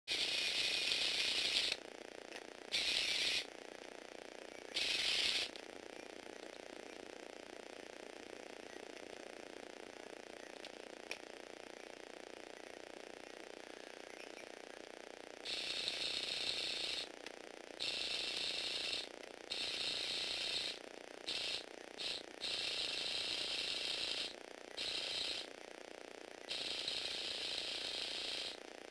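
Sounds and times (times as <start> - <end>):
toy motor and gears rattling: 0.1 - 1.8, 2.6 - 3.5, 4.6 - 5.6, 15.4 - 25.6, 26.4 - 28.9.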